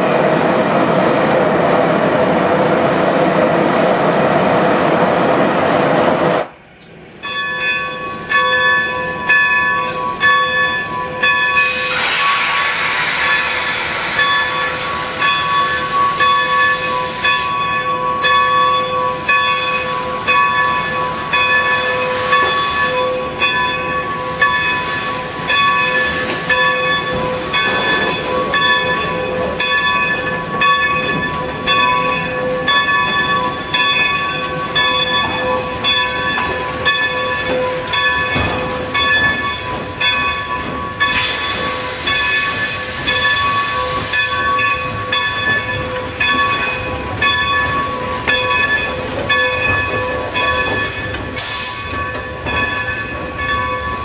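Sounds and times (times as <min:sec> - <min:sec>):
locomotive bell ringing: 0:07.1 - 0:12.4, 0:13.2 - 0:54.0
steam hissing: 0:11.5 - 0:17.6, 0:41.0 - 0:44.6, 0:51.4 - 0:52.1.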